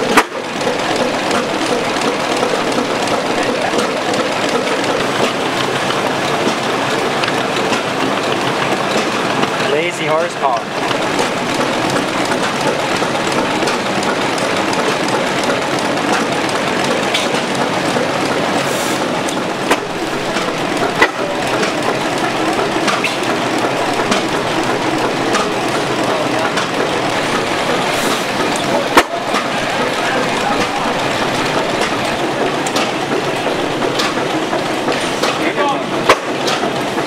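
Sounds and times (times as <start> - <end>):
stationary gas engine clattering: 0.0 - 37.0.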